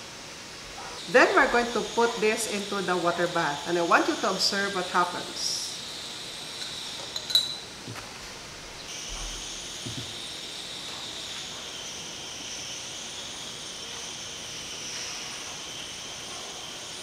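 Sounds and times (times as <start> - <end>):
test tube clinking on glass: 6.6 - 7.7.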